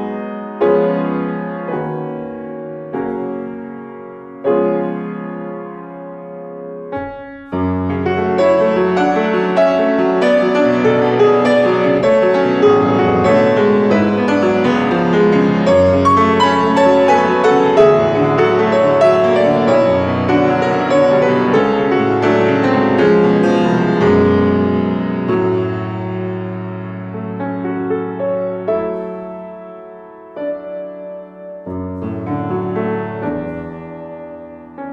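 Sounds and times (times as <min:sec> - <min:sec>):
solo grand piano playing: 0:00.0 - 0:34.9.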